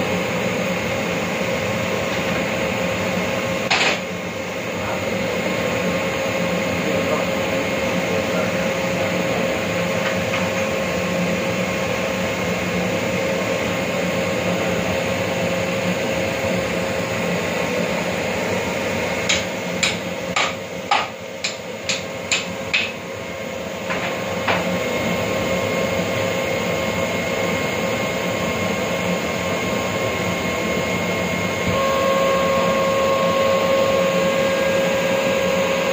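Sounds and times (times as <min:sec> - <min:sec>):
air compressor drone: 0:00.0 - 0:35.9.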